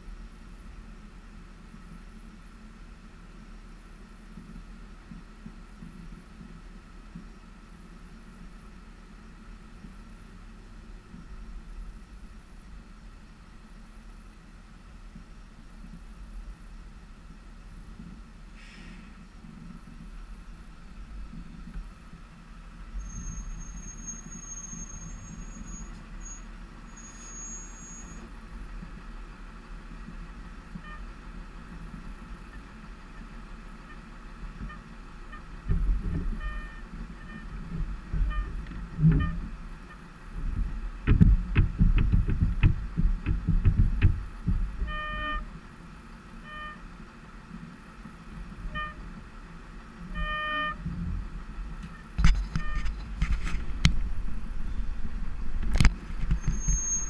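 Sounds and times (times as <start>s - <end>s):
thin high squeal: 23.0s - 28.2s, 56.4s - 57.0s
motorcycle engine idling: 25.0s - 52.8s
short high-pitched beeps: 36.4s - 37.5s, 52.6s - 53.0s.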